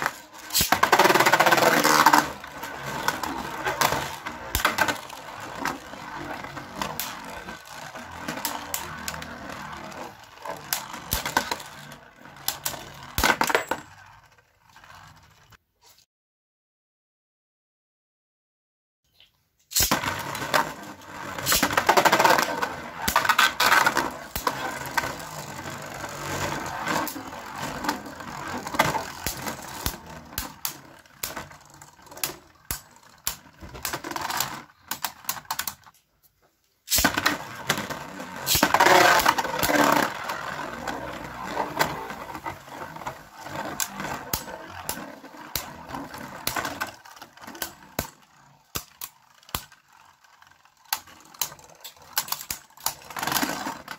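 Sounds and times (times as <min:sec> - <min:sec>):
spinning tops clashing and rattling: 0:00.0 - 0:02.4, 0:21.4 - 0:22.1, 0:28.4 - 0:35.7.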